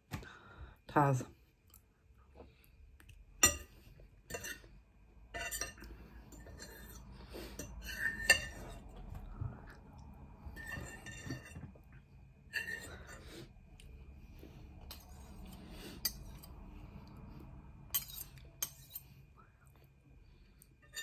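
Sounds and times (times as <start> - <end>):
cutlery clinking on a plate: 3.4 - 4.7, 5.4 - 7.0, 7.6 - 8.8.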